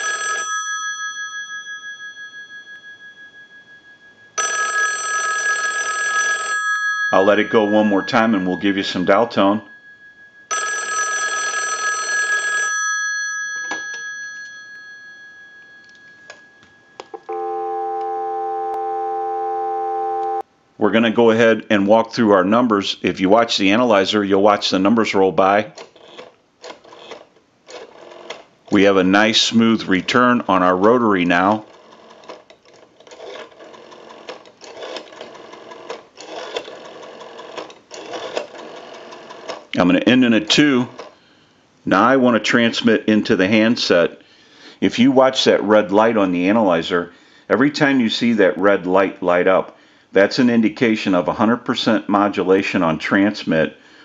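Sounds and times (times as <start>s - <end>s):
telephone bell ringing: 0.0s - 20.4s
steady dial tone: 4.4s - 7.0s, 10.5s - 12.9s, 15.8s - 20.5s
rotary telephone dial clicking: 25.8s - 28.4s, 31.5s - 39.7s.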